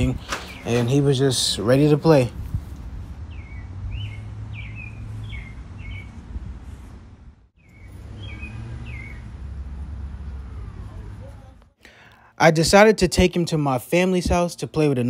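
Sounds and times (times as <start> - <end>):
small bird chirping: 3.3 - 6.2, 7.6 - 9.3.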